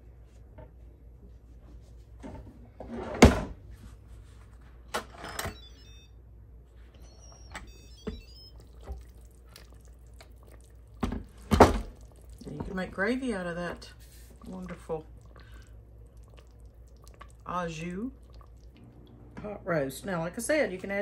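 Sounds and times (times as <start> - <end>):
high electronic tones: 5.3 - 6.1, 7.0 - 8.9.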